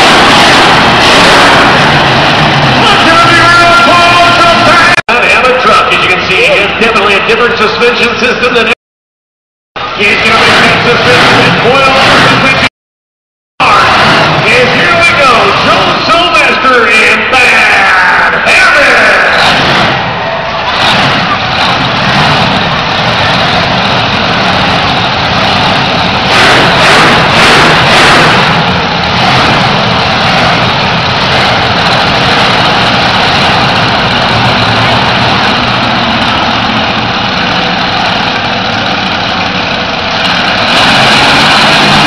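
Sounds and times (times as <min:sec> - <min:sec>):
truck engine idling loudly: 0:00.0 - 0:08.8, 0:09.8 - 0:12.7, 0:13.6 - 0:42.0.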